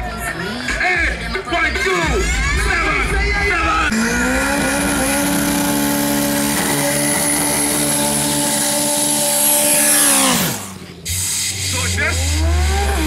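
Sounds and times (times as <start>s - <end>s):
car engine at high revs: 3.9s - 13.0s.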